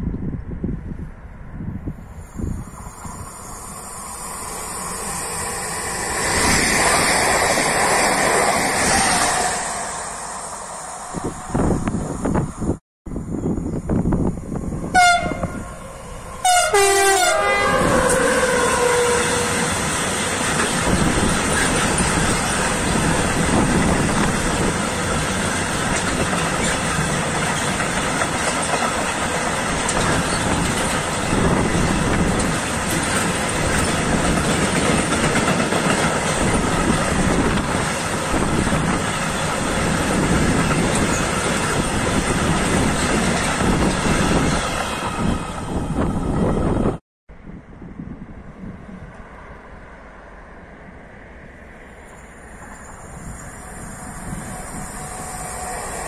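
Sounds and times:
train wheels on rails: 2.0s - 12.8s, 13.6s - 47.0s, 51.3s - 56.0s
locomotive horn blasts: 14.9s - 15.8s, 16.4s - 19.7s.

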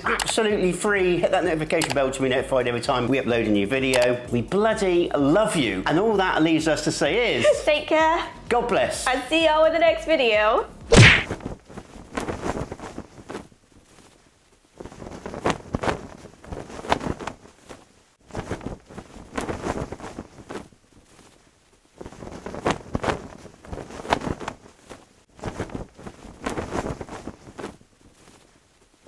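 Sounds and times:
cloth flag flapping in wind: 11.2s - 29.0s.

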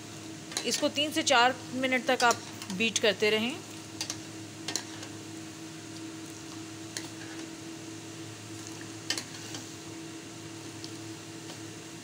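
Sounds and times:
milk tea bubbling in saucepan: 3.7s - 12.0s.

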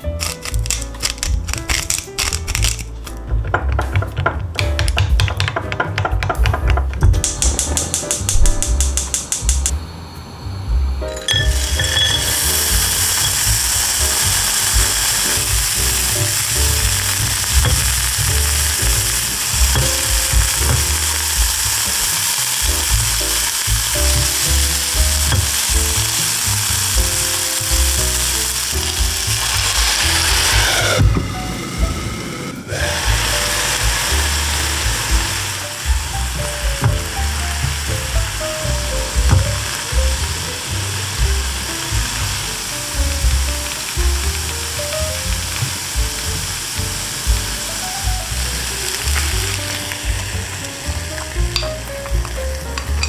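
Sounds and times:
vegetables sizzling in a frying pan: 11.4s - 31.0s, 32.7s - 53.0s.

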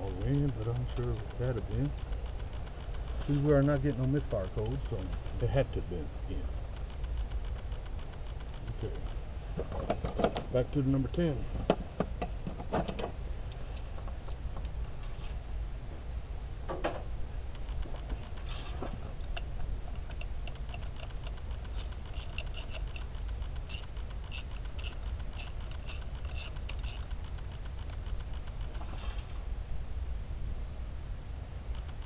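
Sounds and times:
ratchet clicking: 0.0s - 10.4s, 17.5s - 29.1s, 31.7s - 32.0s.

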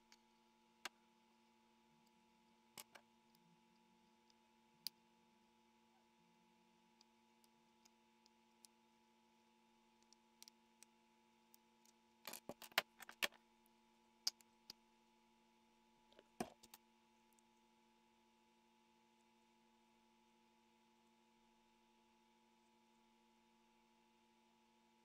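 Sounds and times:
plastic clicking and crackling: 12.3s - 13.4s.

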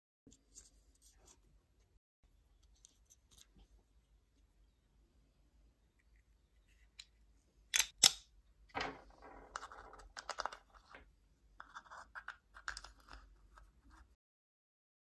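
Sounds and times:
sharp plastic clicks: 7.7s - 8.3s
plastic parts scraping and rustling: 8.7s - 14.1s.

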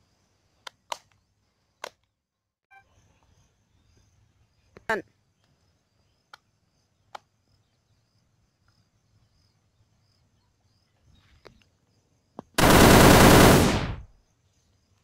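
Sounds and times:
rapid machine-gun fire: 12.6s - 14.1s.

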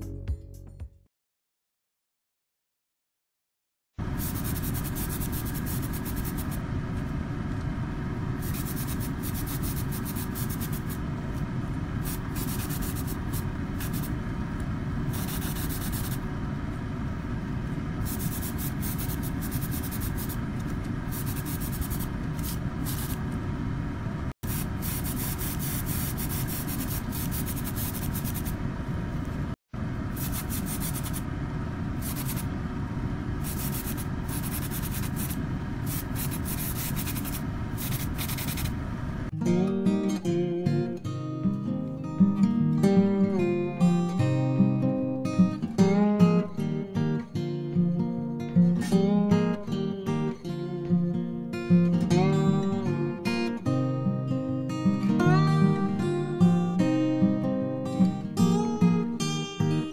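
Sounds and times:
steady motor hum: 4.0s - 39.3s
airbrush hissing: 4.2s - 6.6s, 8.4s - 11.0s, 12.0s - 14.1s, 15.1s - 16.2s, 18.0s - 20.4s, 21.1s - 23.2s, 24.5s - 28.6s, 30.2s - 31.2s, 32.0s - 32.5s, 33.4s - 38.8s.

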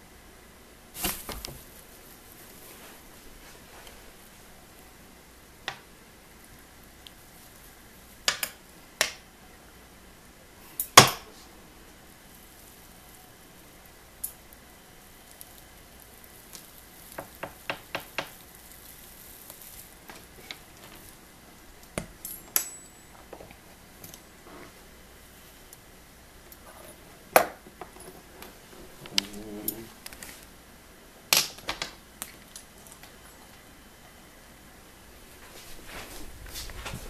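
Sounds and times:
metal tongs clinking on glass: 22.2s - 23.2s.

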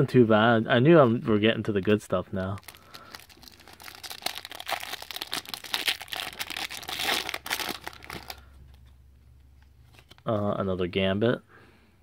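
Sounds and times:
foil wrapper crinkling: 2.4s - 8.5s.

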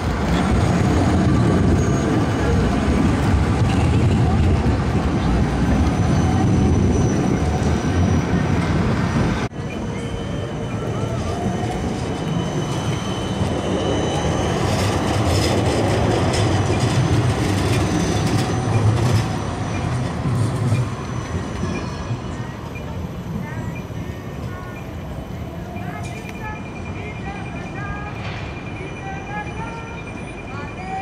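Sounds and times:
tram wheel-on-rail rumble: 0.0s - 31.0s
faint high wheel squeal: 1.6s - 2.6s, 9.6s - 15.0s.

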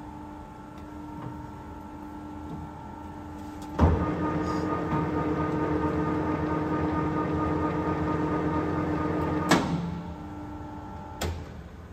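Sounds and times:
lathe running with whine: 4.0s - 9.5s.

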